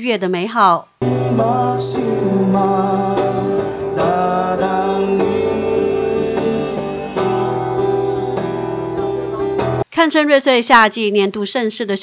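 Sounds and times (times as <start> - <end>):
electric bass: 1.0 - 9.8
person singing: 1.0 - 9.8
acoustic guitar: 1.0 - 9.9.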